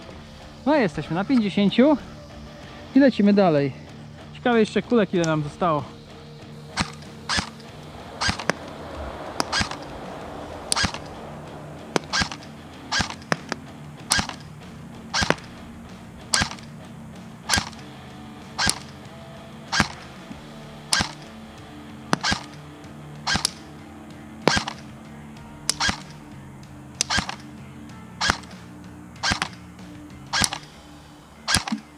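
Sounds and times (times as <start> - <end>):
airsoft gun single shots: 6.7 - 8.7, 9.3 - 9.9, 10.7 - 11.2, 11.9 - 14.5, 15.1 - 15.6, 16.3 - 16.7, 17.5 - 17.8, 18.6 - 19.1, 19.7 - 20.2, 20.9 - 21.4, 22.1 - 22.6, 23.2 - 23.7, 24.4 - 24.9, 25.7 - 26.2, 27.0 - 27.5, 28.2 - 29.6, 30.3 - 30.8, 31.5 - 31.9.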